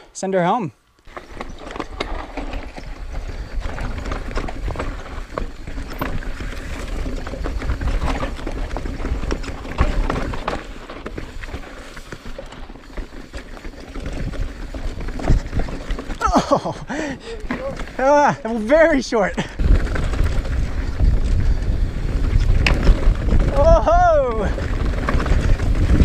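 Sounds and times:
bike rattling: 1.0s - 26.0s
bike tyres crunching over rocks: 1.0s - 26.0s
wind on microphone: 19.6s - 26.0s.

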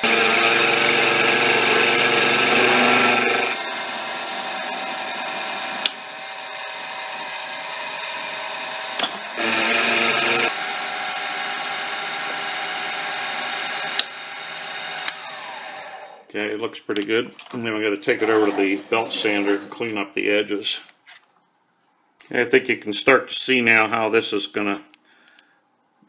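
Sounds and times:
spindle running: 0.0s - 8.4s
mill cutting metal whine: 0.0s - 10.6s.

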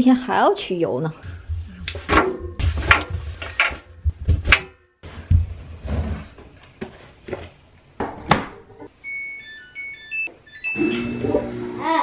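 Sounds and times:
clothes rustling in washer drum: 1.3s - 7.6s.

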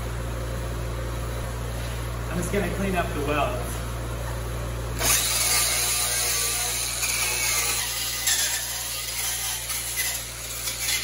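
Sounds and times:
angle grinder motor whirring: 5.0s - 11.0s
wire brush scrubbing metal: 5.0s - 11.0s.

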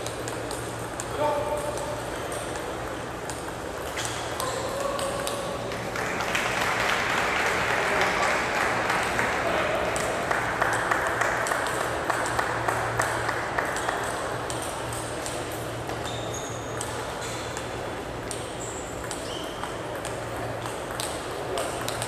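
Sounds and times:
shoes squeaking on court floor: 3.2s - 5.6s, 13.8s - 21.8s
applause in a hall: 5.7s - 14.0s
table tennis ball ticks: 16.8s - 22.0s.

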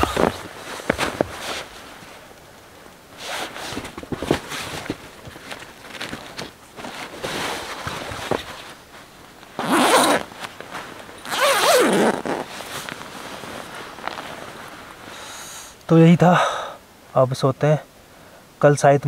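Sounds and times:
nylon fabric rustling: 3.2s - 15.1s
zipper pulled: 9.6s - 10.3s, 11.2s - 13.0s.

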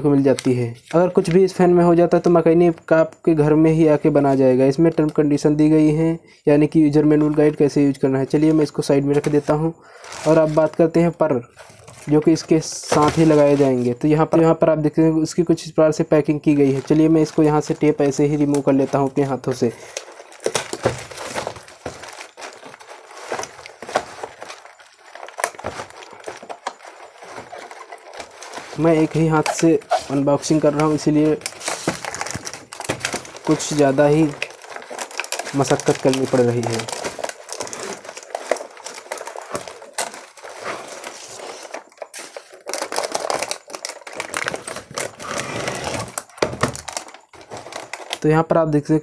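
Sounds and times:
plastic wrap crinkling: 0.0s - 1.7s, 6.8s - 14.6s, 15.4s - 48.6s
packing tape peeling: 19.8s - 48.2s.

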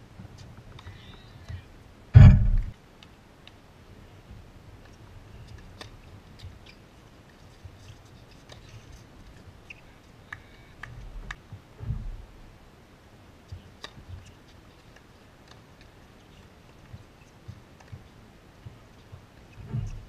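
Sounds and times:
ball bouncing: 2.2s - 2.7s
low rumble: 2.2s - 2.7s.

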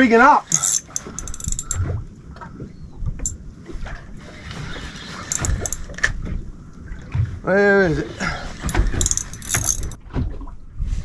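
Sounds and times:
fishing reel clicking: 0.5s - 1.8s, 5.2s - 6.0s, 8.6s - 10.0s
water lapping against boat hull: 0.5s - 11.0s.

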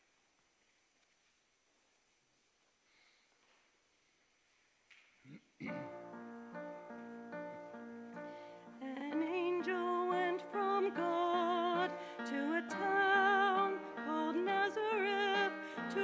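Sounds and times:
soft instrumental accompaniment: 5.6s - 16.0s
person singing with vibrato: 8.6s - 16.0s.

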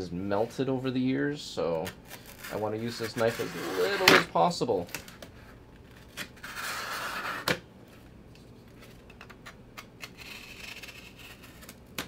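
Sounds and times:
knife scraping through cardboard: 2.1s - 4.2s, 6.4s - 7.5s, 10.2s - 11.8s.

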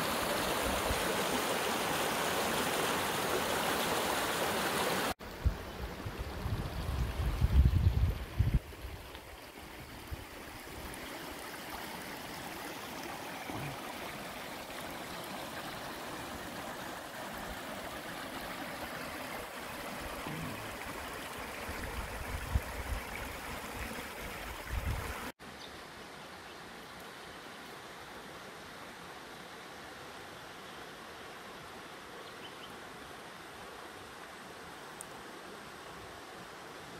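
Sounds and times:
river water rushing over rocks: 0.0s - 5.2s
distant water hiss: 0.0s - 25.3s.

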